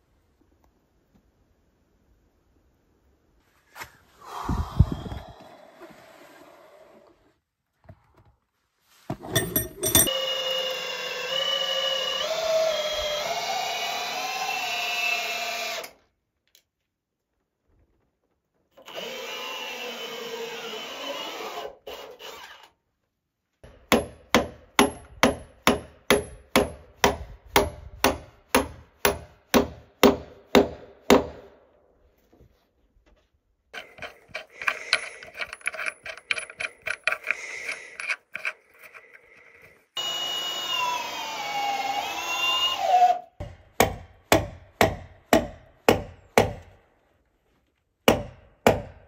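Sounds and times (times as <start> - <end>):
cordless drill boring wood: 10.1 - 16.0, 18.8 - 22.7, 33.8 - 43.3.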